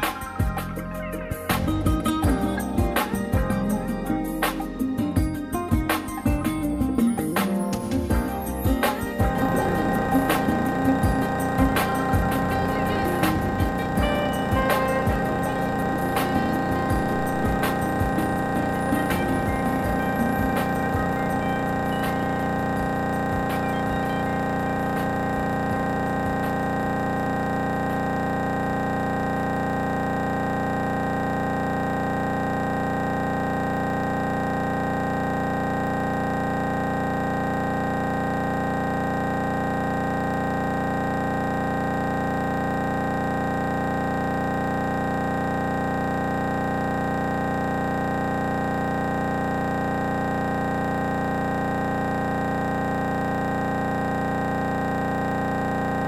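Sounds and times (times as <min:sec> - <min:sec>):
light aircraft engine drone: 0:09.3 - 0:26.6.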